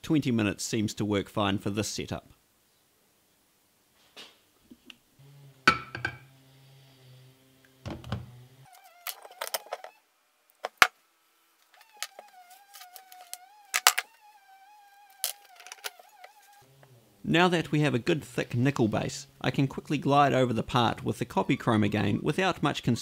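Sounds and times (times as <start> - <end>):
glass jar clicks and knocks: 5.7 - 6.2
wavering whistle-like tone: 11.8 - 16.7.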